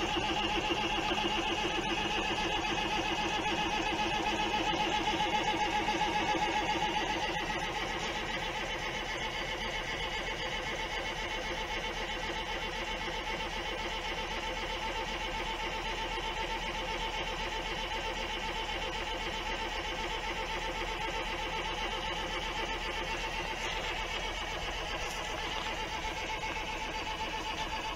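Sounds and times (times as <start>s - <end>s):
diesel engine idling: 0.0s - 14.6s, 20.4s - 27.9s.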